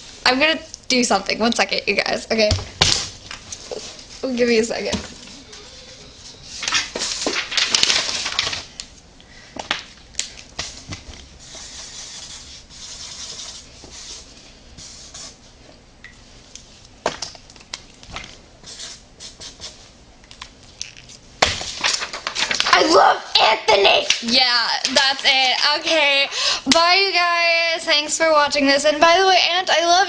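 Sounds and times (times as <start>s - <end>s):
paper rustling: 2.8s - 8.9s, 20.8s - 23.0s, 23.7s - 26.1s.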